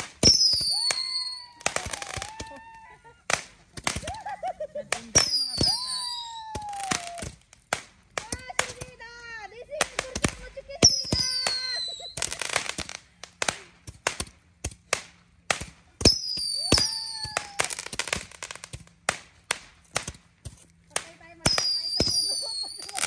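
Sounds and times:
rockets hissing: 0.0s - 2.4s, 9.8s - 14.2s
sharp bangs and crackles: 0.0s - 2.5s, 3.2s - 9.1s, 9.7s - 23.0s
falling whistles: 0.2s - 2.3s, 5.2s - 7.1s, 16.0s - 17.8s.

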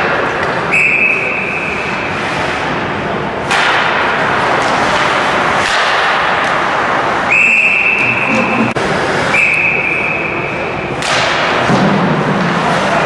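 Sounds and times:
ice rink noise: 0.0s - 13.0s
sharp crack: 3.4s - 6.7s, 11.0s - 12.0s
referee's whistle blast: 7.3s - 8.6s.

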